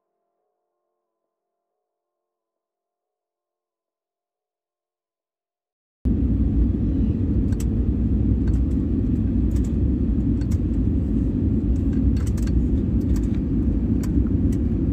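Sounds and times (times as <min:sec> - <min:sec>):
jet engine cabin rumble: 0:06.1 - 0:14.9.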